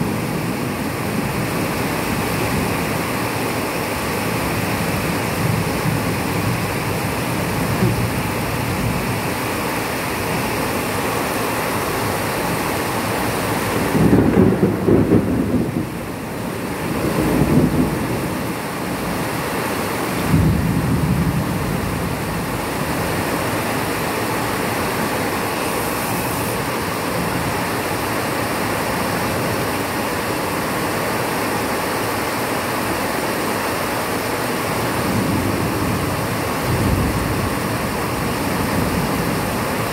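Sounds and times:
steady rain hiss: 0.0 - 39.9
thunder rumbling: 13.2 - 19.4, 20.1 - 24.2, 35.0 - 39.9
sudden thunder crack: 13.9 - 16.0, 20.3 - 21.5.

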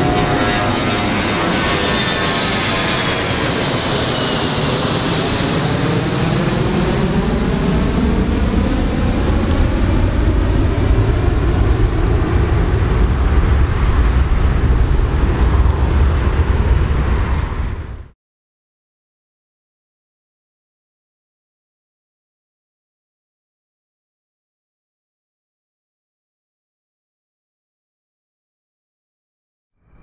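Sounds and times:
airplane engine whine: 0.0 - 18.2
deep airplane rumble: 0.0 - 18.2.

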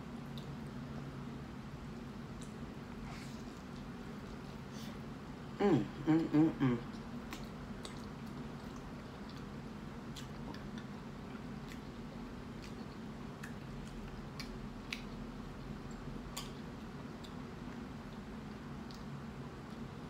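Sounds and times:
steady low hum: 0.0 - 20.0
person humming: 5.6 - 6.9
close chewing with mouth clicks: 6.8 - 20.0.

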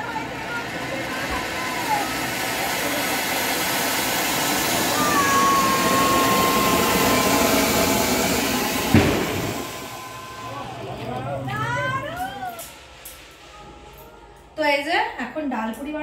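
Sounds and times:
firework fountain hissing: 0.0 - 16.0
sharp crack: 8.8 - 9.9.

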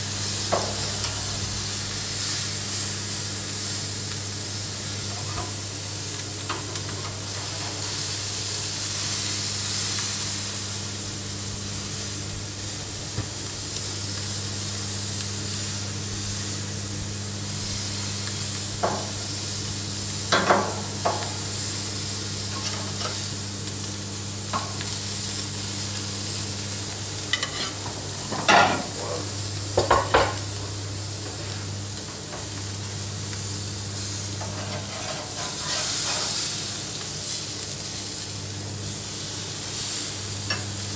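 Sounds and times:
fish sizzling on grill: 0.0 - 40.9
metal spatula clinking on grill: 27.3 - 27.8.

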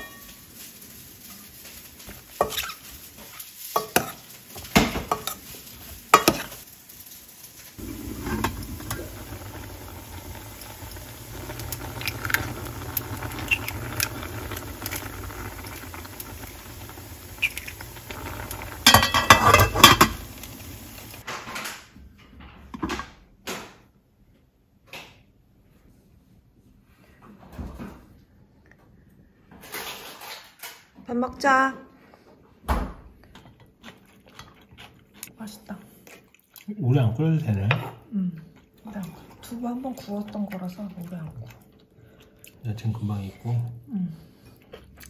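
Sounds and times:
tofu sizzling in a pan: 0.0 - 21.2
utensils stirring and knocking pan: 1.7 - 6.6, 7.8 - 21.2.

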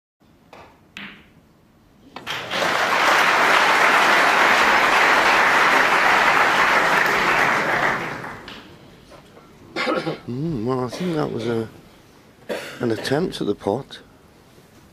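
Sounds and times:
audience applause: 2.2 - 8.7.

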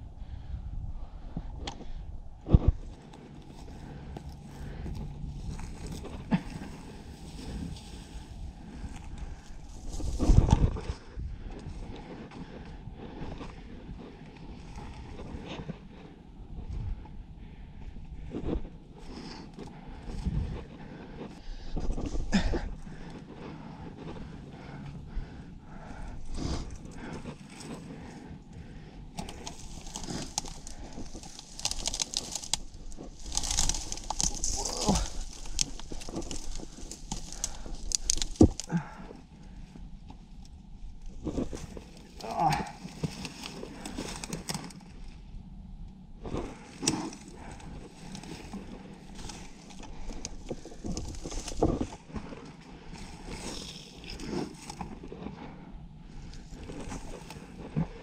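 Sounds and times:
dry brush rustling and snapping: 2.5 - 11.0, 29.1 - 39.1, 40.4 - 45.1, 46.2 - 55.2, 56.3 - 58.0
footsteps crunching through dry leaves: 29.6 - 38.7.

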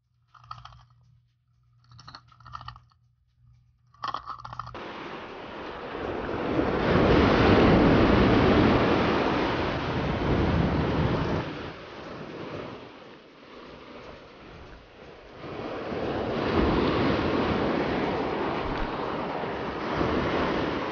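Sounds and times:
ocean surf breaking: 4.8 - 20.9.

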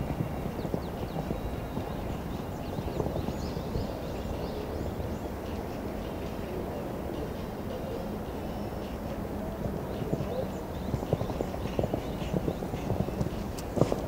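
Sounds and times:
horse hoofbeats cantering: 0.0 - 4.6, 9.5 - 14.0.

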